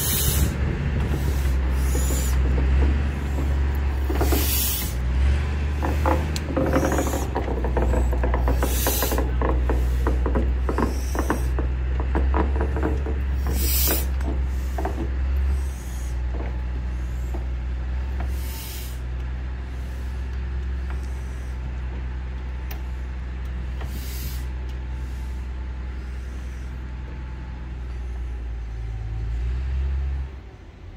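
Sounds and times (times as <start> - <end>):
sharp steam hisses: 0.0 - 5.1, 8.4 - 11.6, 13.3 - 17.5, 18.1 - 20.3, 23.8 - 26.8
steam locomotive rumbling: 0.0 - 30.9.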